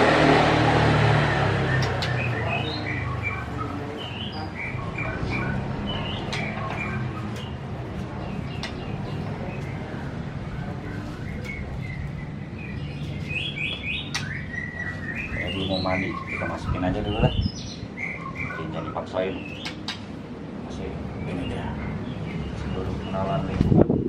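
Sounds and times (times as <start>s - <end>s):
songbird whistling and chirping: 1.6s - 7.6s, 8.3s - 19.8s.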